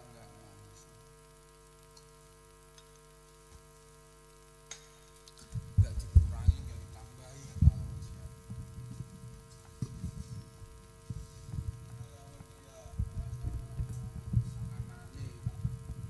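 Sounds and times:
faint electrical hum: 0:00.0 - 0:16.0
low thumps and rumbles: 0:05.4 - 0:16.0.

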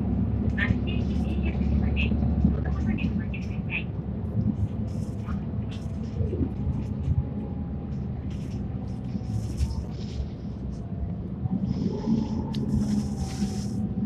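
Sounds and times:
bus engine and road rumble: 0:00.0 - 0:14.0.

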